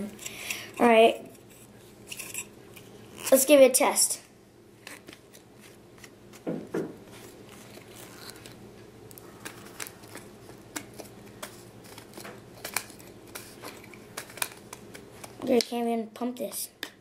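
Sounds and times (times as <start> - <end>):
plastic clicks and rattles: 9.4 - 15.7.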